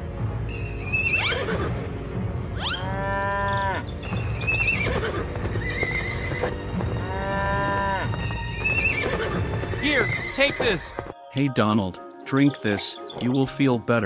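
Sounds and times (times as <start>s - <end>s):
background music: 0.0s - 14.0s
cartoon horse whinnying: 1.0s - 1.7s, 2.6s - 10.9s.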